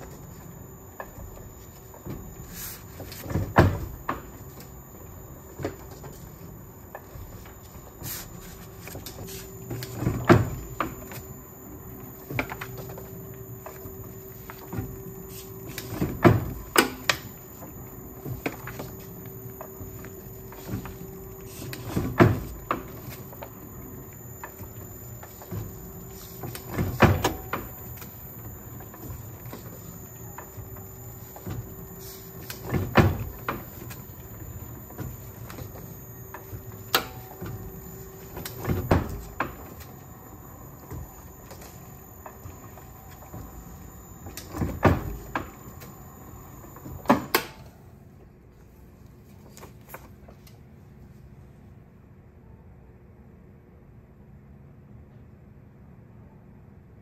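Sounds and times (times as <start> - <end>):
faint steady hum: 0.0 - 57.0
printing press platen clacking: 12.0 - 46.1.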